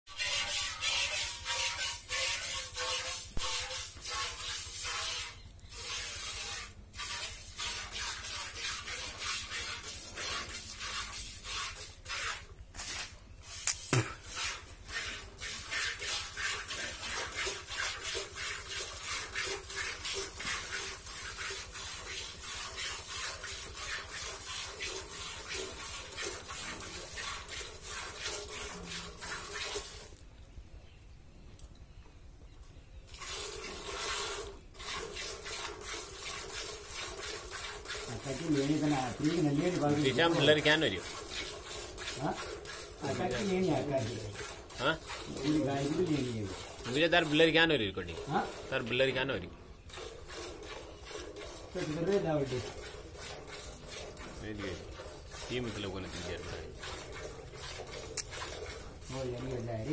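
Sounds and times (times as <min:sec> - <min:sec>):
milk squirting into steel bucket: 0:00.2 - 0:30.2, 0:33.1 - 0:59.9
sharp click: 0:13.6 - 0:14.1.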